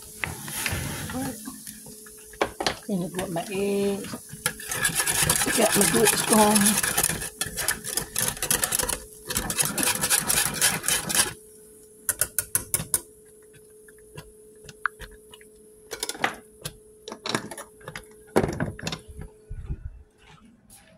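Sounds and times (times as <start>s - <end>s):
utensil scraping saucepan: 3.2s - 11.4s.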